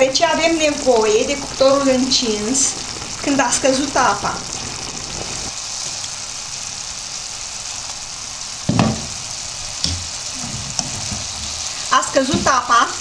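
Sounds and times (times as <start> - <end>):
food sizzling in a frying pan: 0.0 - 13.0
dull knock: 8.7 - 9.2, 9.8 - 10.1.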